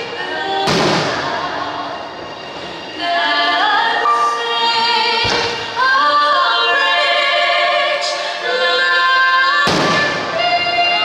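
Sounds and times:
singing voice with vibrato: 0.0s - 11.0s.

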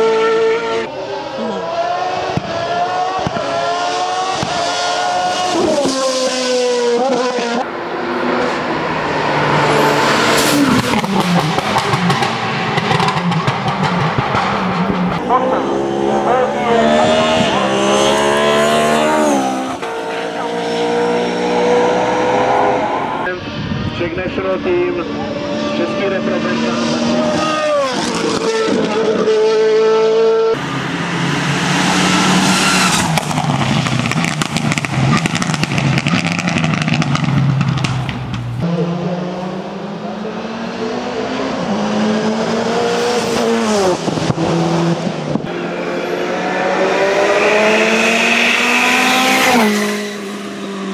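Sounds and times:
race car engine at high revs: 0.0s - 50.9s.

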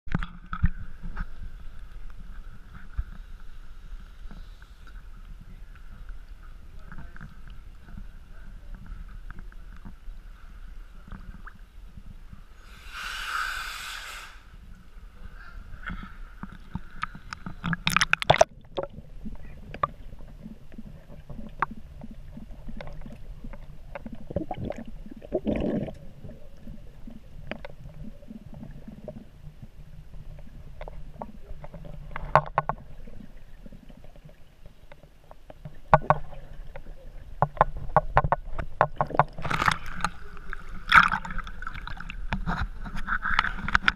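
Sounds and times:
muffled underwater rumble: 0.1s - 12.7s, 14.4s - 43.9s
water sloshing and splashing: 15.9s - 43.9s
gurgling bubbles: 16.7s - 34.6s, 35.8s - 43.9s.

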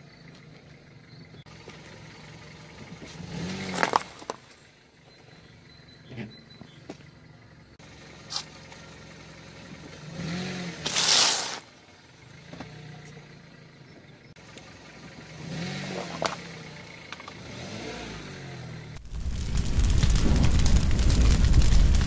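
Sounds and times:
car engine running: 0.0s - 17.8s.

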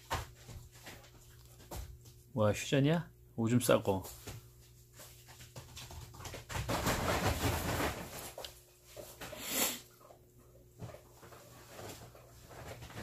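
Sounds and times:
dogs panting and scuffling: 0.0s - 2.3s, 4.1s - 9.4s.

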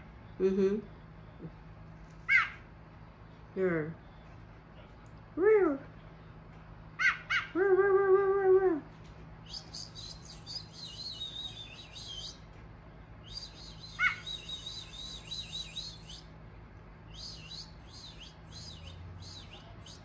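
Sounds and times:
birds chirping: 0.0s - 8.1s, 8.8s - 20.0s
loud bird call: 2.3s - 2.7s, 13.3s - 16.2s.

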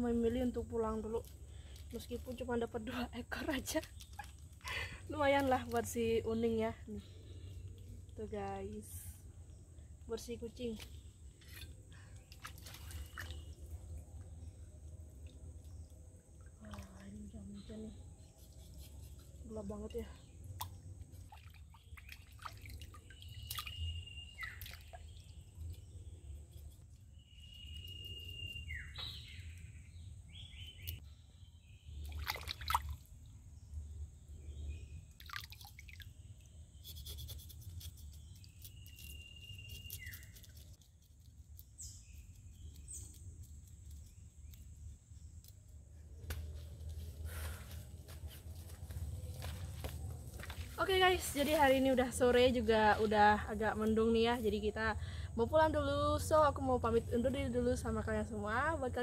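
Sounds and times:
low steady rumble: 13.4s - 18.4s, 42.0s - 59.0s
light clicks and drips: 20.6s - 26.0s.

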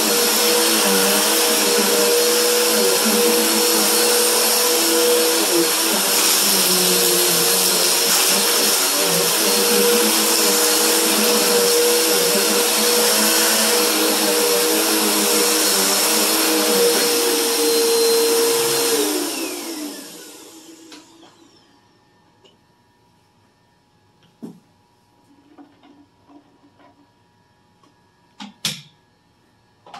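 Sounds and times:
vacuum cleaner motor: 0.0s - 21.8s.

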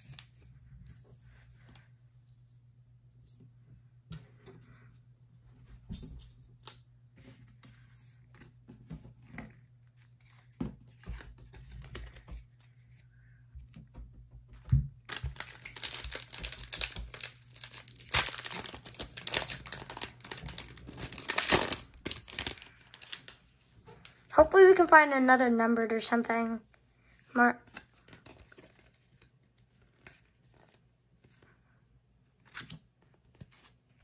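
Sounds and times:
plastic wrapper tearing and crinkling: 15.0s - 23.4s.

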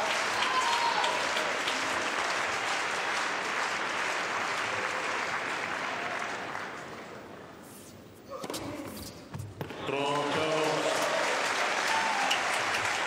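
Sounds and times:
crowd applauding: 0.0s - 7.3s, 9.9s - 13.0s.

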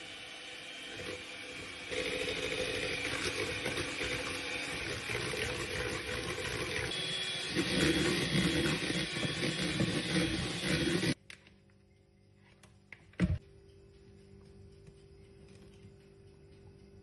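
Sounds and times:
electric hand mixer whipping: 0.0s - 11.2s.

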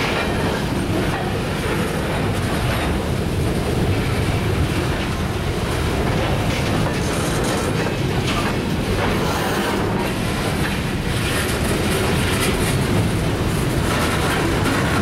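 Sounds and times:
freight cars rolling: 0.0s - 15.0s
steel wheels clacking over rail joints: 0.0s - 15.0s.

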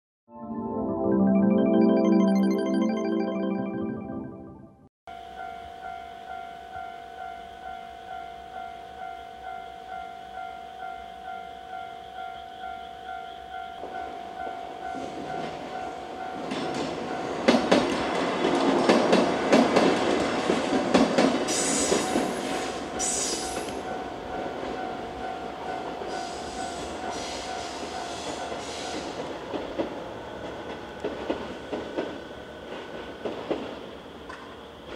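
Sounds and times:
level crossing bell ringing: 0.6s - 4.7s
train wheels clattering over rails: 16.4s - 34.9s.

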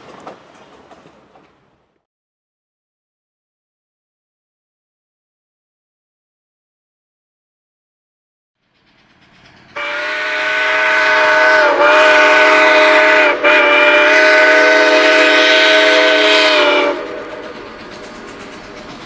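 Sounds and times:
train noise: 0.0s - 2.0s, 8.6s - 19.0s
steam locomotive whistle: 9.7s - 18.7s.

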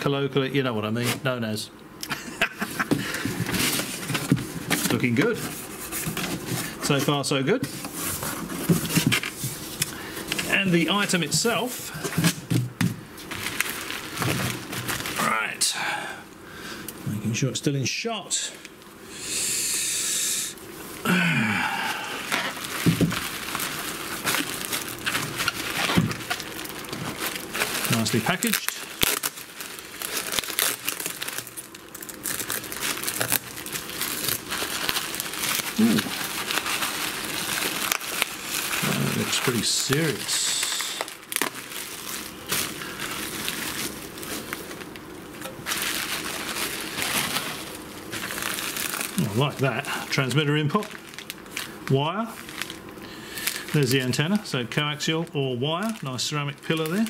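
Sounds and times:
bubble wrap crinkling: 2.2s - 16.2s, 20.4s - 57.0s
man humming: 19.2s - 22.6s, 35.7s - 36.2s, 38.8s - 41.1s.

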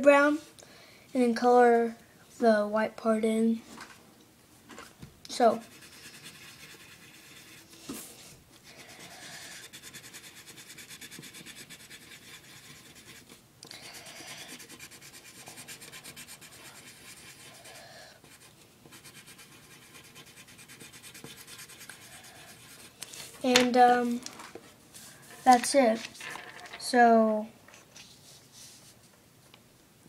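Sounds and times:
colored pencil scribbling on paper: 5.4s - 7.7s, 8.7s - 23.0s.

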